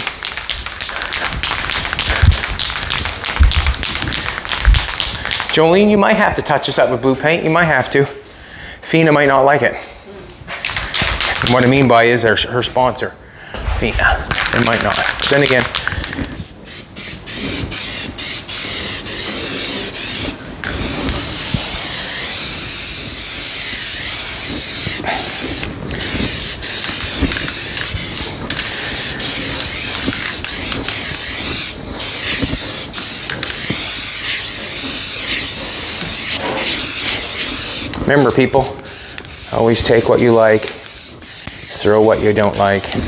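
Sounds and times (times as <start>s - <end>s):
masking tape being peeled off: 0.0s - 5.6s, 14.3s - 43.0s.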